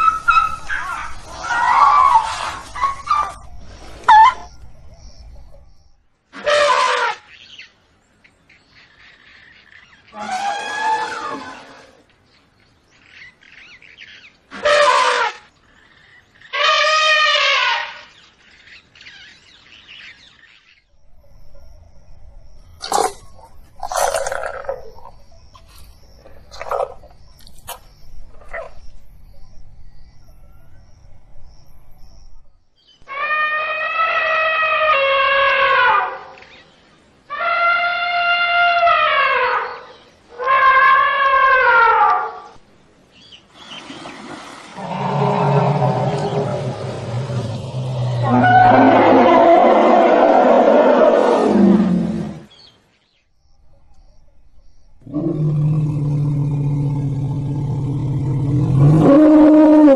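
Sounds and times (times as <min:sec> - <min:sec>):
elephant trumpeting: 0:06.4 - 0:07.3, 0:10.1 - 0:12.0, 0:14.5 - 0:15.5, 0:16.5 - 0:18.1, 0:33.1 - 0:36.4, 0:37.3 - 0:42.5, 0:44.8 - 0:52.5
birds chirping: 0:42.5 - 0:59.3.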